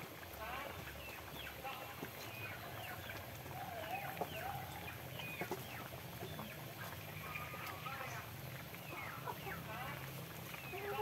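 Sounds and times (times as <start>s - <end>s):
chickens clucking and chirping: 0.5s - 11.0s.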